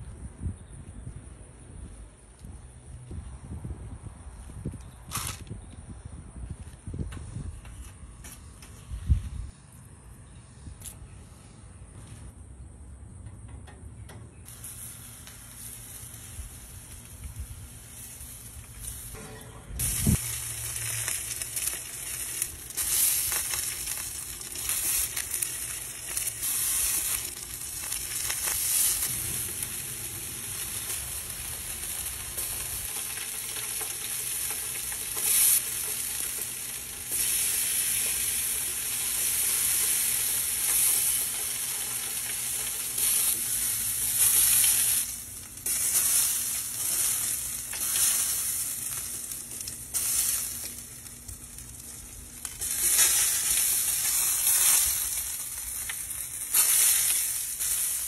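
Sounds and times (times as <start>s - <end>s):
burgers sizzling on a grill: 14.5s - 58.0s.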